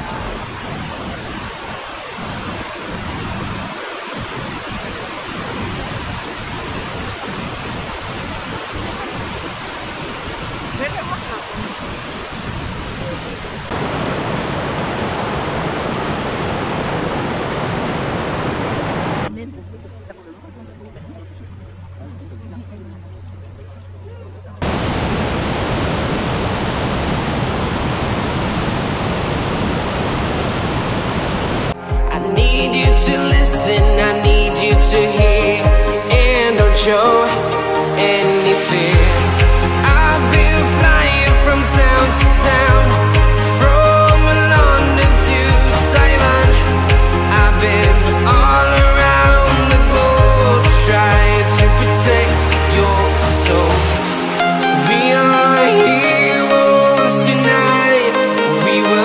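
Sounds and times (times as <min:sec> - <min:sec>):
rushing falling water: 0:00.0 - 0:19.3, 0:24.6 - 0:59.0
electronic music with heavy beat: 0:31.8 - 0:59.0.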